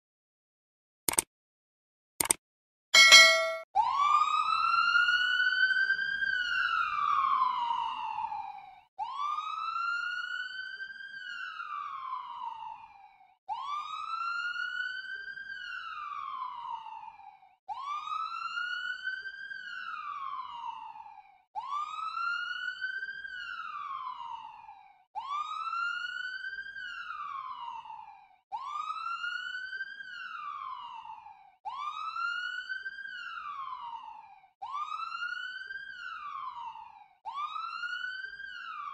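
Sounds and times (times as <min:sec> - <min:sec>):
ambulance siren wailing: 0:03.8 - 0:38.9.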